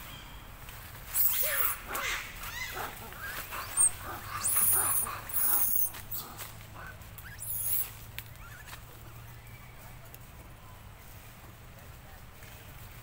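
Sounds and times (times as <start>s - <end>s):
baby monkey squealing: 1.1s - 8.8s.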